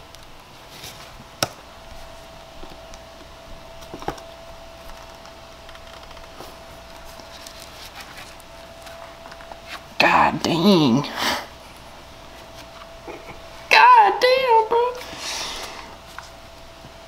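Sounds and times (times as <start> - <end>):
faint hum: 0.0 - 17.0.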